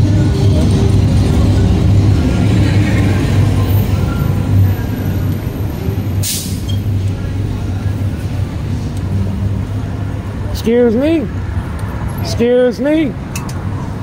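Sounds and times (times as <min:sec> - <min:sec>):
short hiss: 0:06.2 - 0:06.7.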